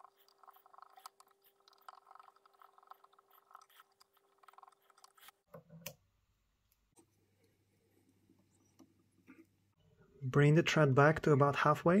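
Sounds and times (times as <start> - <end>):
thread winding soft scratching: 0.0 - 5.5.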